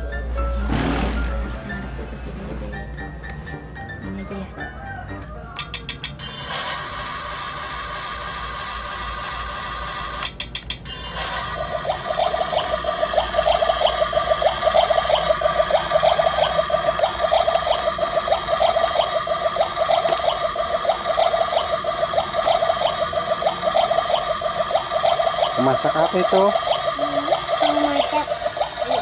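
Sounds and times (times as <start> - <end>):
electronic bubbling sound effect: 11.6 - 29.0.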